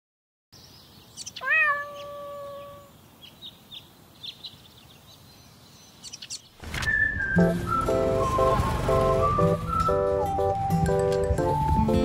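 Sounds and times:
cat meowing: 1.4s - 2.9s.

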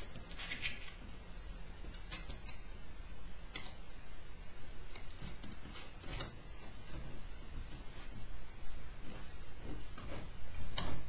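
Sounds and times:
nut turning clicks and scrapes: 0.1s - 1.0s.

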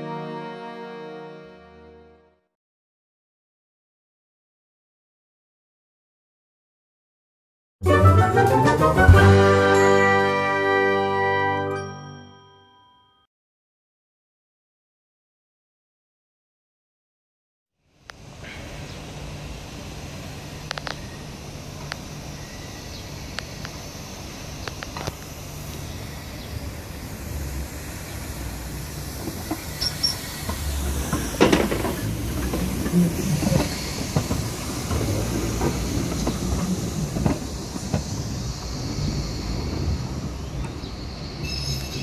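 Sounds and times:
light rail vehicle passing: 7.8s - 12.0s, 17.8s - 42.0s
wheels knocking over rail joints: 29.2s - 38.6s
high wheel squeal: 29.3s - 42.0s.

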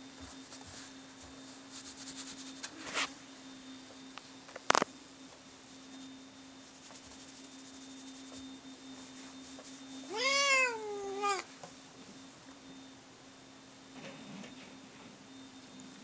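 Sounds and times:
cat meowing: 10.1s - 11.5s.

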